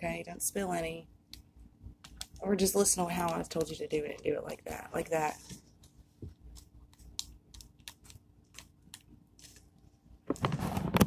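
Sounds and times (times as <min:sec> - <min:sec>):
crinkly packet ticks: 0:06.5 - 0:09.1.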